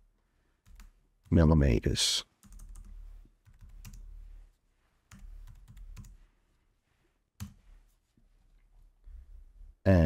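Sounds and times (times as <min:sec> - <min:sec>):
faint keyboard typing: 0:00.6 - 0:01.4, 0:02.3 - 0:04.5, 0:05.1 - 0:06.3, 0:07.4 - 0:07.8.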